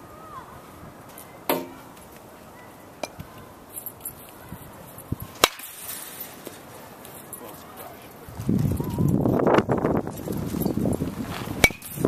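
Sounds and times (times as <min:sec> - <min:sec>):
metal bat hitting ball: 0:01.5 - 0:01.9, 0:05.4 - 0:05.9, 0:11.6 - 0:12.0.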